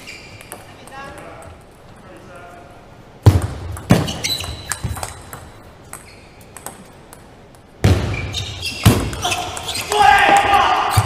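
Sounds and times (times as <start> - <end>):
table tennis ball bouncing: 0.3 - 1.9, 3.2 - 8.2, 8.8 - 10.5.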